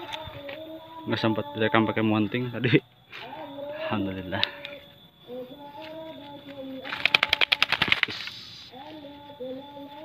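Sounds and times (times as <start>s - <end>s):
dove wings flapping: 6.8s - 8.5s.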